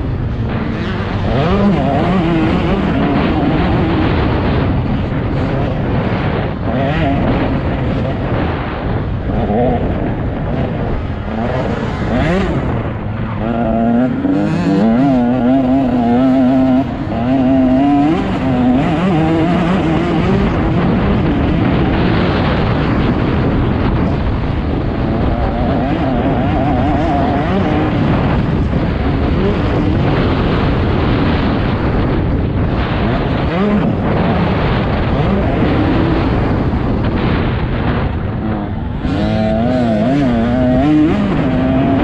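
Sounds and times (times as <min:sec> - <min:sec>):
dirt bike engine revving: 0:00.0 - 0:42.0.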